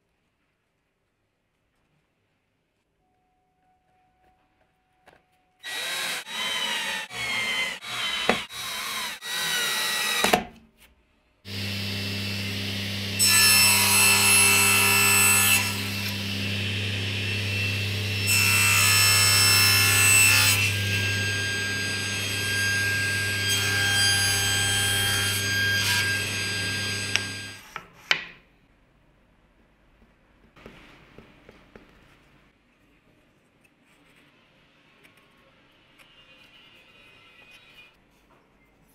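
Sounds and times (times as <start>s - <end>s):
table saw cutting wood: 5.6s - 10.5s, 11.5s - 27.8s.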